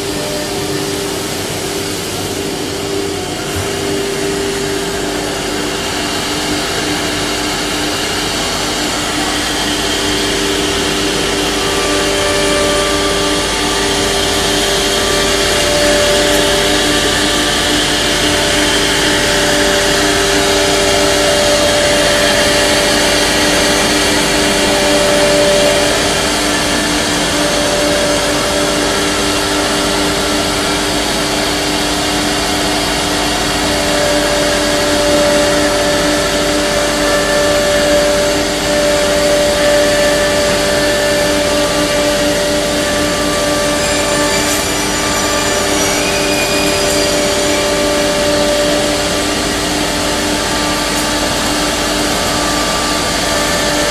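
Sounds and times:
router spindles whining: 0.0 - 53.9.

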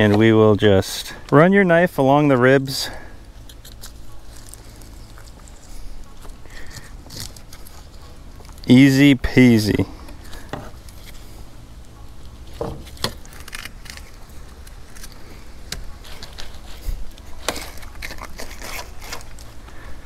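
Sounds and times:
knife scraping over fish bones: 16.0 - 19.5.

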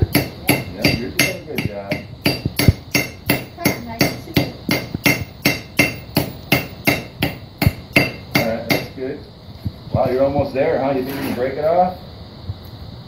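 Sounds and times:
hammer striking hot steel: 0.0 - 9.1.

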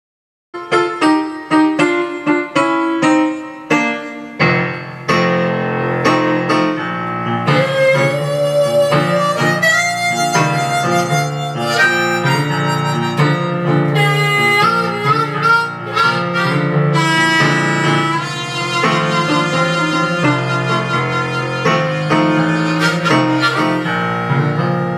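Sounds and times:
keyboard piano chords: 0.6 - 24.9
harmonica melody: 7.3 - 24.9.

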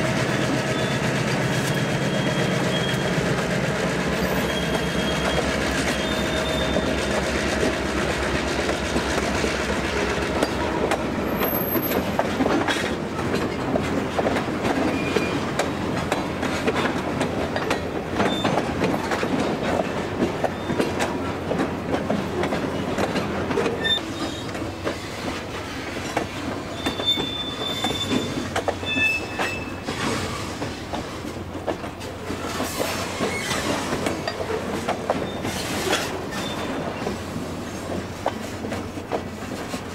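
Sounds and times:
diesel locomotive engine running: 0.0 - 12.5
freight train wheels clicking on track: 0.0 - 39.9
high wheel squeals: 0.7 - 3.2, 4.2 - 7.0, 14.8 - 15.4, 23.8 - 26.0, 26.6 - 30.5, 32.9 - 33.9, 35.2 - 37.8.

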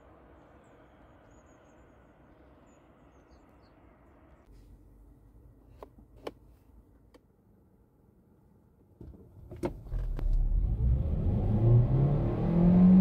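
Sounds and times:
small birds chirping: 0.4 - 4.5.

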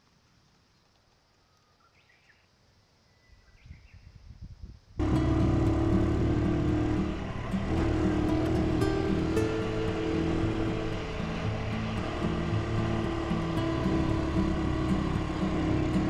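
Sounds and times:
faint chirps: 0.4 - 4.3
low rumble: 5.0 - 16.0.

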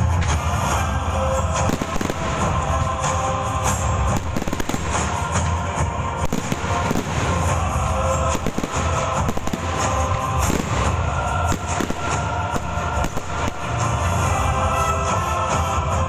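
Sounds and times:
fireworks bangs and crackles: 0.0 - 16.0
loud show music: 0.0 - 16.0.

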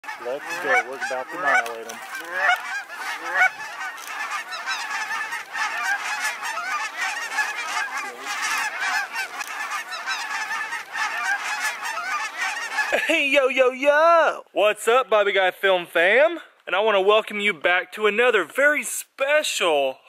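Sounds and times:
flock of geese honking: 0.0 - 13.1.

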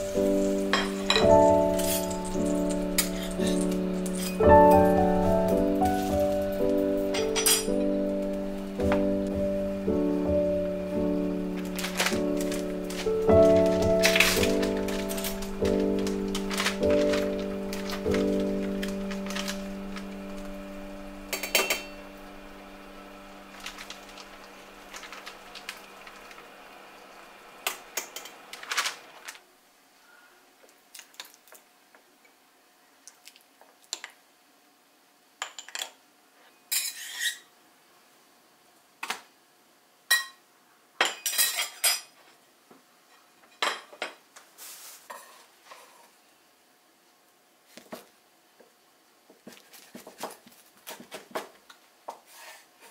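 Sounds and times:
metal spoon clinking on dishes: 7.2 - 7.8, 21.3 - 22.0.

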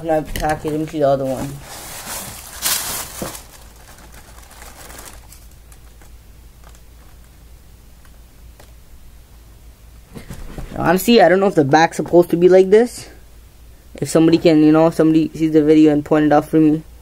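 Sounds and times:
low steady hum: 0.0 - 17.0
cardboard lid rustle: 0.6 - 5.4.

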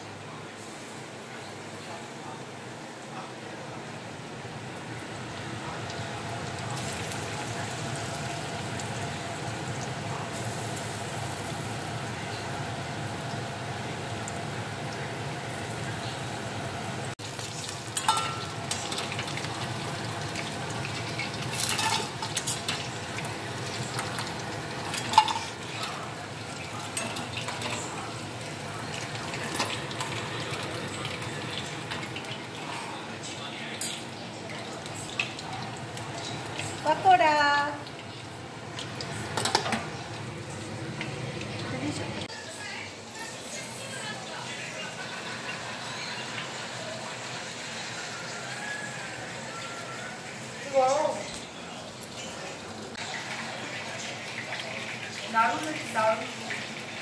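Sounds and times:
chicken sizzling in hot oil: 3.6 - 57.0
spoon and lid clattering on pan: 18.0 - 19.2, 21.6 - 22.8, 24.8 - 25.6.

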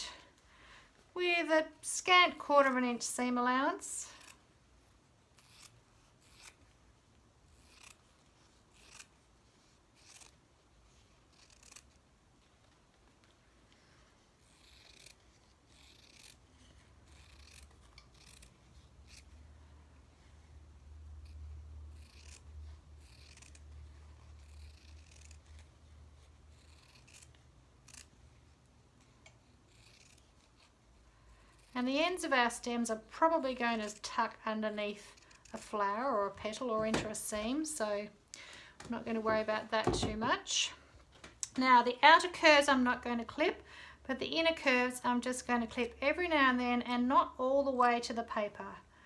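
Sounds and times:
scissors snipping fabric: 5.3 - 6.7, 7.5 - 8.1, 8.7 - 9.1, 9.9 - 10.4, 11.1 - 12.0, 14.4 - 19.3, 21.2 - 25.8, 26.5 - 28.1, 29.0 - 30.8, 35.0 - 36.7.

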